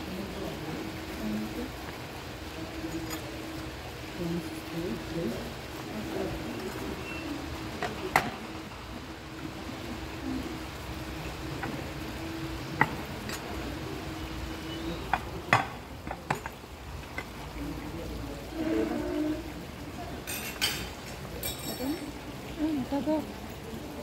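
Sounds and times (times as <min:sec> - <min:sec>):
dishes and cutlery clinking: 0:20.2 - 0:22.2.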